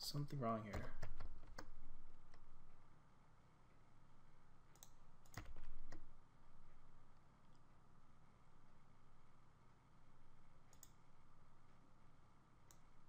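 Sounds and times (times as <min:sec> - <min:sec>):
keyboard and mouse clicks: 0:00.3 - 0:02.4, 0:04.7 - 0:06.1, 0:10.7 - 0:11.0.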